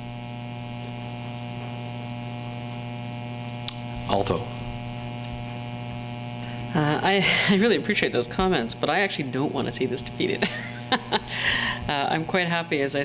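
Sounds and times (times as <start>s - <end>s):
electrical mains hum: 0.0s - 13.0s.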